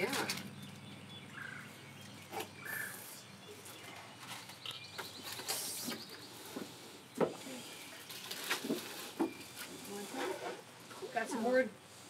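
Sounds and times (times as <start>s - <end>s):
faint birds chirping: 0.0s - 12.0s
bird trill: 0.5s - 6.4s.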